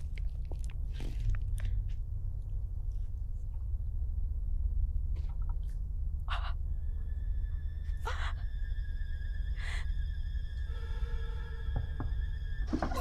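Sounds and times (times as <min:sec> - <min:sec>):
low rumbling drone: 0:00.0 - 0:13.0
eerie high sustained tones: 0:06.2 - 0:13.0.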